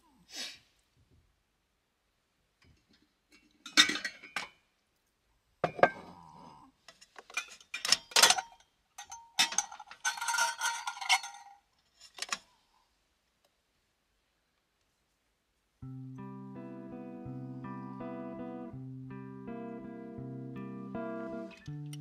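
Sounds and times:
kitchenware clinking on wooden counter: 0:05.6 - 0:06.1, 0:07.2 - 0:12.4.

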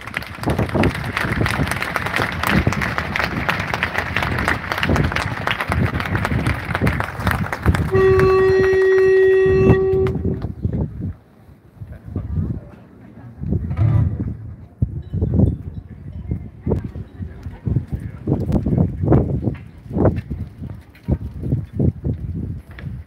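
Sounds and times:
crowd applauding: 0:00.0 - 0:10.3
horn blast: 0:07.9 - 0:10.4.

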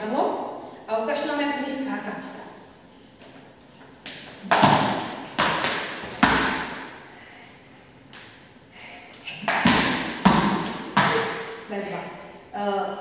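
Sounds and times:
skipping rope slapping floor: 0:04.0 - 0:07.0, 0:09.1 - 0:11.6.

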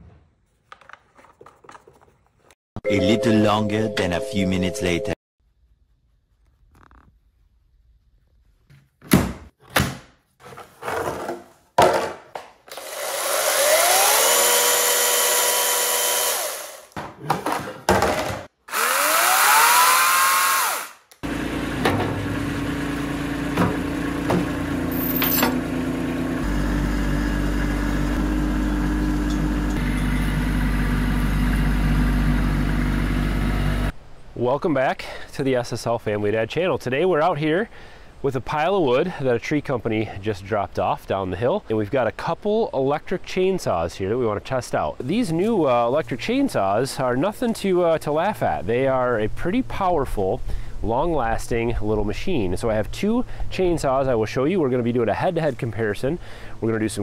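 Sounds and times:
electric chainsaw revving: 0:12.7 - 0:16.9, 0:18.7 - 0:21.1
tractor engine running: 0:21.2 - 0:33.9.

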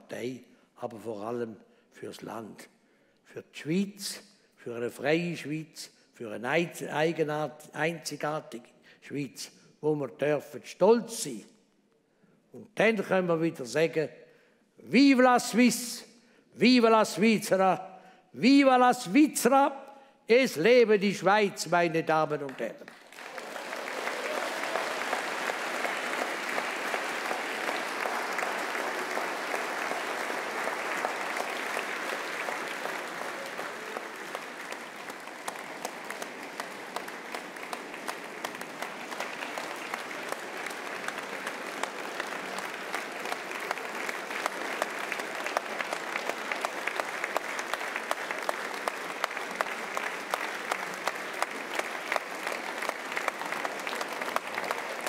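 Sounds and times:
large audience applauding: 0:22.4 - 0:55.0.

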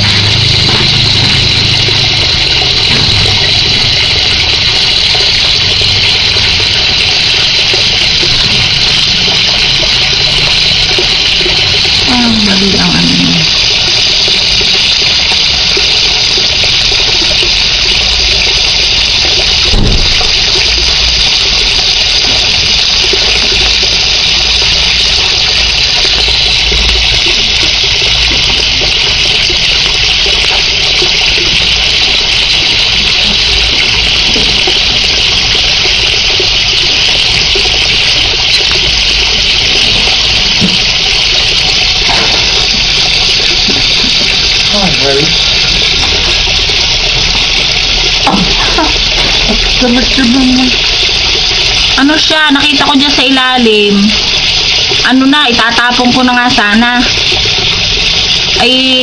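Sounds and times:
running water rushing: 0:00.0 - 0:59.0.

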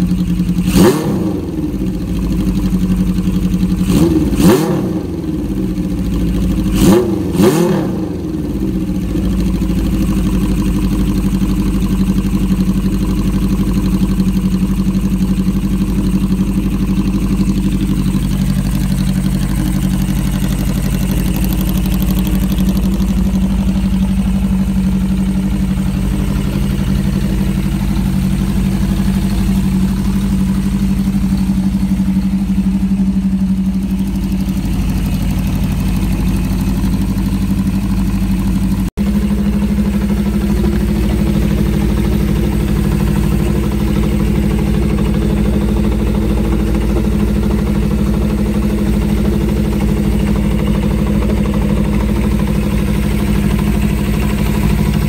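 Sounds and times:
motorcycle engine idling: 0:00.0 - 0:55.0.

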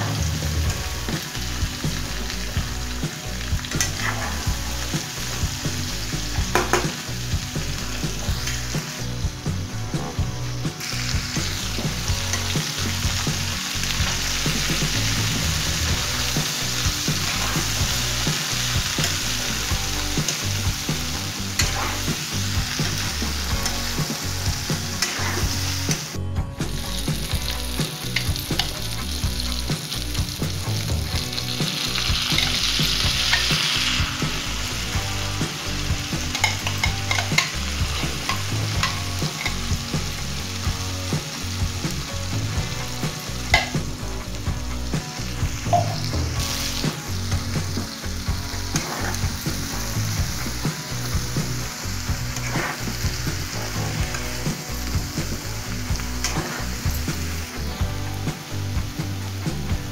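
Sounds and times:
vegetables sizzling in oil: 0:00.0 - 0:59.9
metal spoon clicking on pan: 0:36.3 - 0:37.6, 0:43.5 - 0:43.8.

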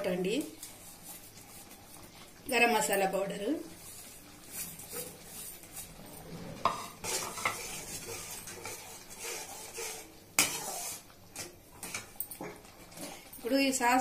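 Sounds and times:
sauce sizzling: 0:00.0 - 0:14.0
spoon scraping and clinking in pan: 0:06.7 - 0:13.3.

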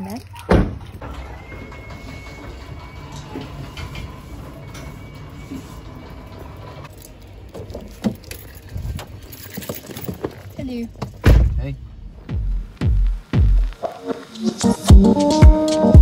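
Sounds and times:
car door opening: 0:00.4 - 0:02.5.

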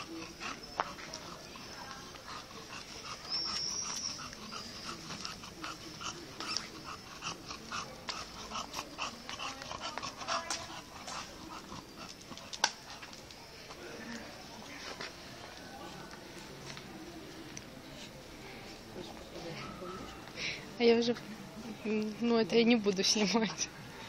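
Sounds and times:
dog panting and wheezing: 0:00.0 - 0:13.6.

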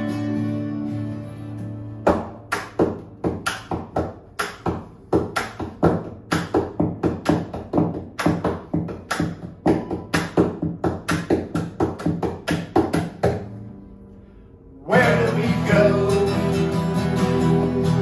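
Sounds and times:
hands beating on guitar bodies: 0:02.0 - 0:13.5
strummed acoustic guitar chord: 0:14.9 - 0:18.0.

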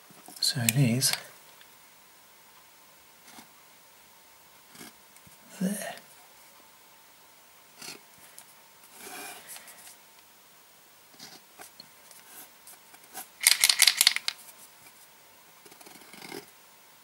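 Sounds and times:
paint pen rattling: 0:13.4 - 0:14.4.

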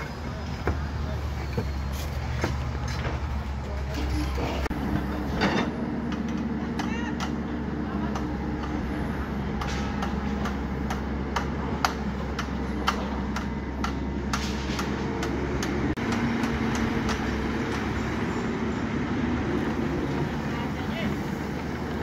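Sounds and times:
excavator diesel engine running: 0:00.0 - 0:22.0
sharp clicks and knocks: 0:09.6 - 0:17.9.

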